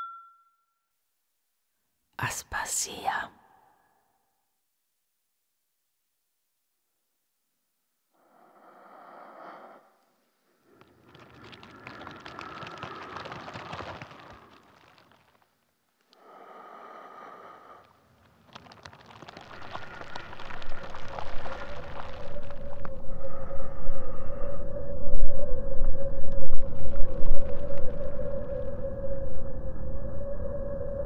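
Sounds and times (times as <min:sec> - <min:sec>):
crackling rustling noise: 0:09.4 - 0:23.5, 0:25.6 - 0:29.2.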